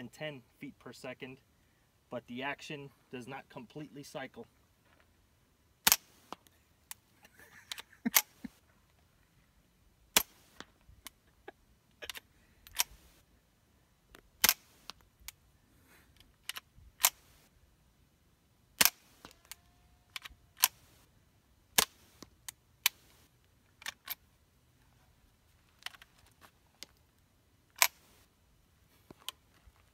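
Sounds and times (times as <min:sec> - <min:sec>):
suppressed rifle shots: 0:05.8 - 0:06.4, 0:10.1 - 0:10.6, 0:14.4 - 0:14.9, 0:18.8 - 0:19.4.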